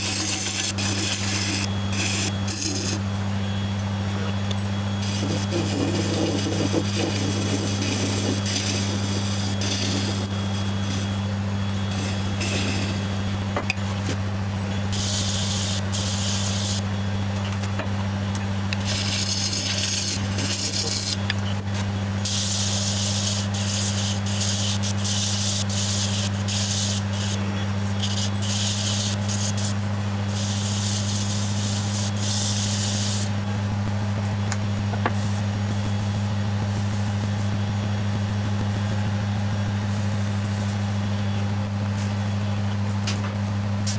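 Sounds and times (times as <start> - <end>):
hissing sanding and cutting: 0.0 - 3.0, 5.0 - 11.1, 18.8 - 21.2, 22.2 - 27.4, 28.0 - 33.3
lathe motor hum: 0.0 - 43.9.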